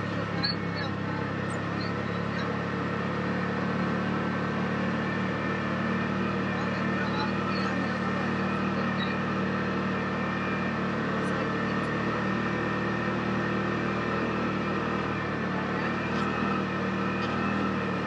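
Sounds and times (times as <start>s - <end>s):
utility vehicle engine running: 0.0s - 18.0s.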